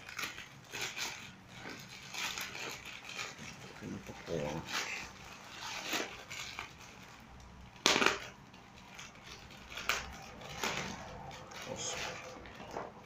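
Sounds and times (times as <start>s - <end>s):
plastic bag crinkling and tearing: 0.0s - 13.0s.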